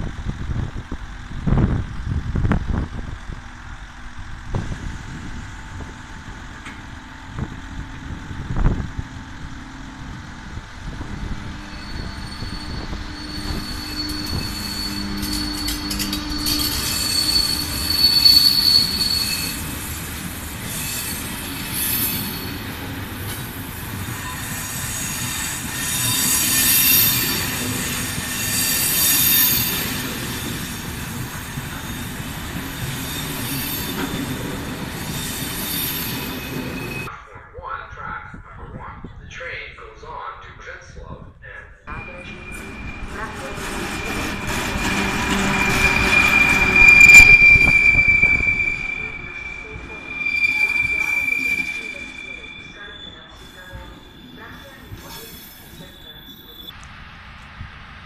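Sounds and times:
train wheels rumbling: 0.0s - 37.1s, 41.9s - 58.0s
high-pitched wheel squeals: 11.4s - 23.4s, 24.0s - 37.1s, 41.9s - 56.8s.

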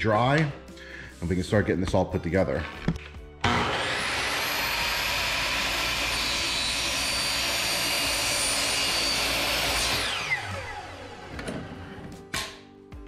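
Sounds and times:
chop saw whining while cutting: 3.4s - 12.6s.

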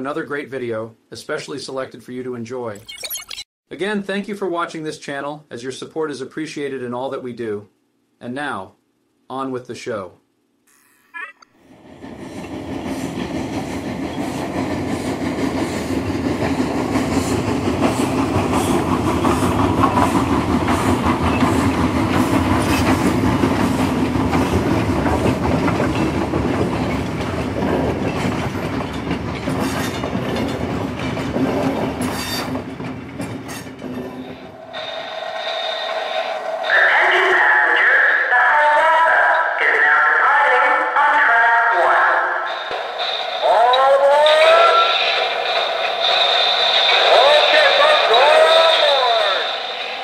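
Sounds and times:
model train rumbling: 11.6s - 38.6s, 42.0s - 50.0s
clickety-clack over rail joints: 12.0s - 34.4s.

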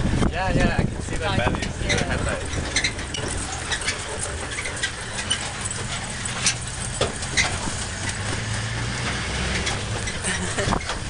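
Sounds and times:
vehicle clicks and knocks: 0.0s - 11.0s
vehicle engine droning: 0.0s - 11.0s.

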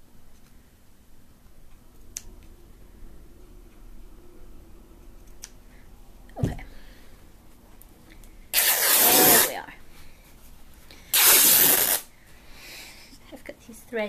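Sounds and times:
thump: 6.4s - 6.6s.

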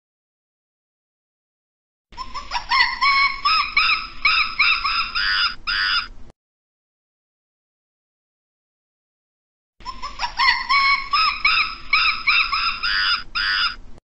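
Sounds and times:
monkey squealing calls: 2.2s - 6.1s, 9.8s - 13.8s.

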